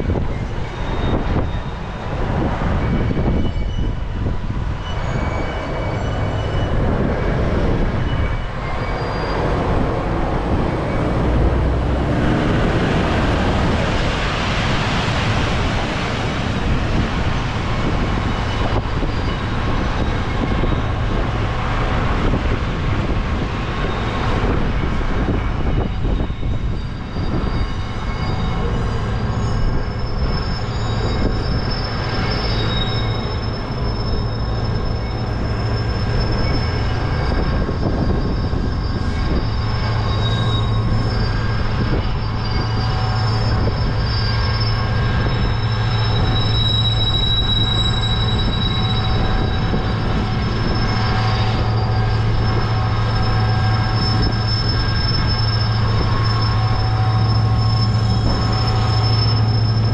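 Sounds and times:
freight train rumbling: 0.0 - 59.9
wheels squealing on rails: 0.0 - 59.9.

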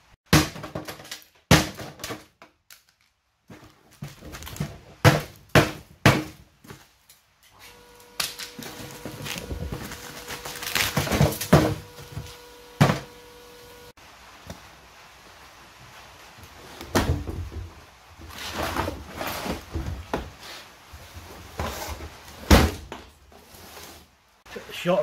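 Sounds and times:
steady hum: 7.7 - 14.4.

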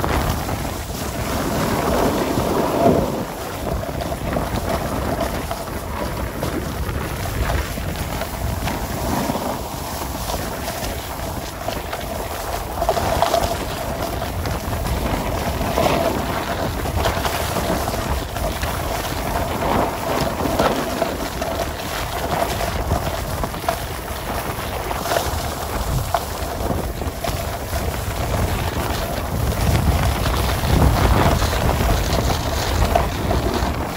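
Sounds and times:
snowboard scraping over snow: 0.0 - 33.9
wind buffeting microphone: 0.0 - 33.9.

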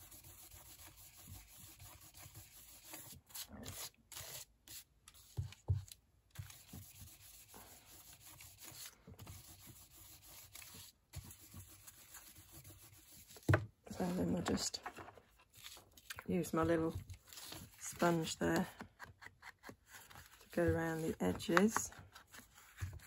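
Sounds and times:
sponge scuffing on cardstock: 19.6 - 23.0.

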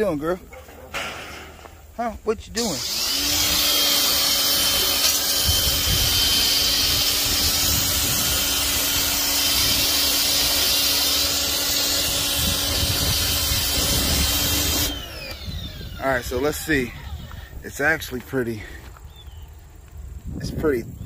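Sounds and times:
pressure washer motor whine: 2.8 - 17.5.

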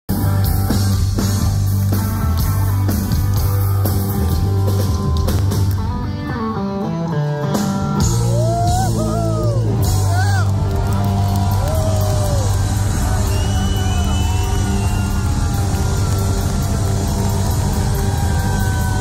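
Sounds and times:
live rock band playing: 0.1 - 19.0
bending guitar notes: 0.2 - 11.1.

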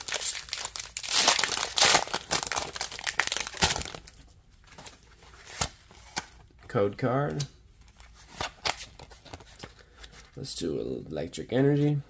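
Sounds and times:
foil wrapper crinkling: 0.0 - 4.2.

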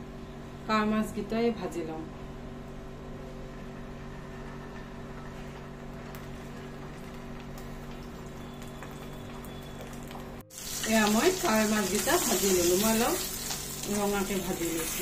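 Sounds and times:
fish sizzling in a frying pan: 9.8 - 15.0.

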